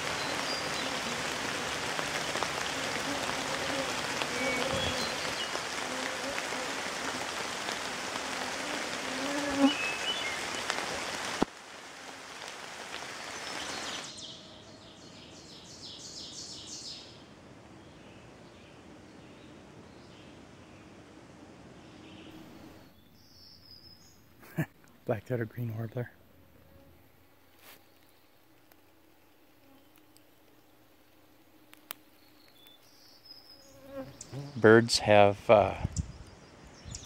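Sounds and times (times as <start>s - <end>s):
rain pattering on pond: 0.0s - 14.3s, 27.9s - 33.2s.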